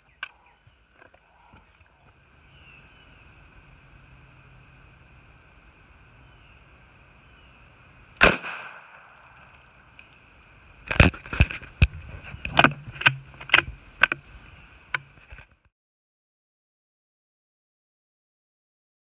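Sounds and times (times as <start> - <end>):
rifle shots cracking: 8.2 - 9.4.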